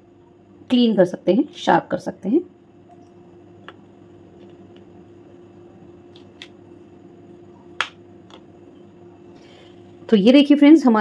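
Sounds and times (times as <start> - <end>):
faint steady hum: 0.0 - 11.0
balls tapped onto a plate: 3.6 - 4.9, 7.8 - 8.5.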